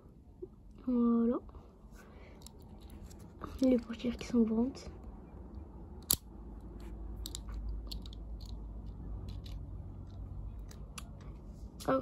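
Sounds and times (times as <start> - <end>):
soft handling rubbing: 1.7 - 5.0
toy car clicking: 7.2 - 11.1.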